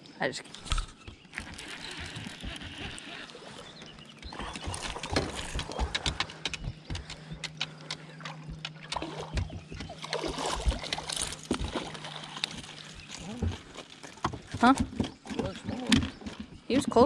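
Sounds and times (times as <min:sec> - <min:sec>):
steady low hum: 0:00.0 - 0:17.0
knocks and clicks of handling: 0:03.8 - 0:17.0.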